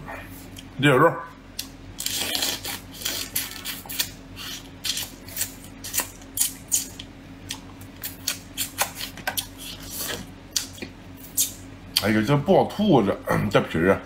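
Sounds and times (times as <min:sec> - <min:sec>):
crab shell crunching and cracking: 0:01.6 - 0:10.8.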